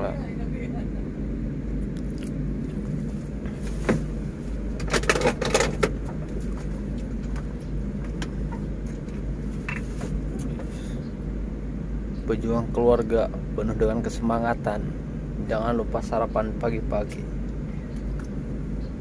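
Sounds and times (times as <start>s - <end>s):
knocks and clatter: 4.8s - 9.1s.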